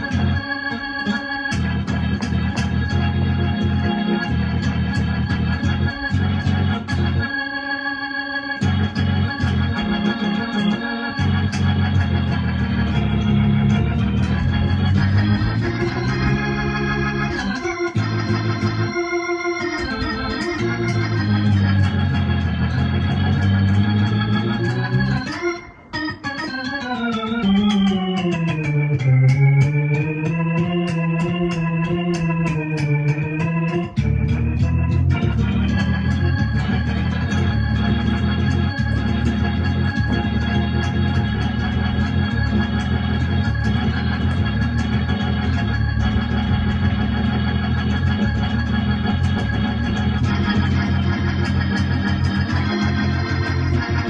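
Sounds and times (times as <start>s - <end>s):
gospel organ chords on keyboard: 0.0s - 54.0s.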